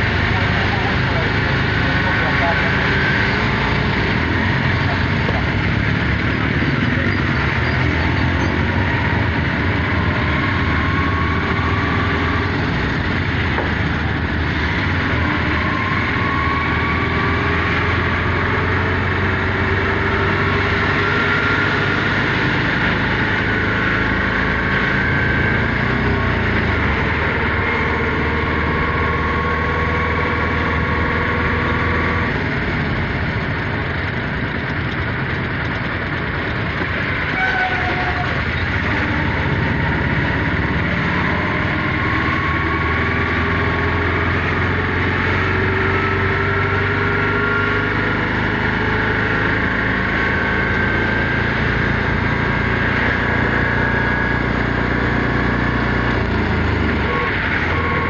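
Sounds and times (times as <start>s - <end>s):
faint engine whines: 0.0s - 58.0s
large engine droning: 0.0s - 58.0s.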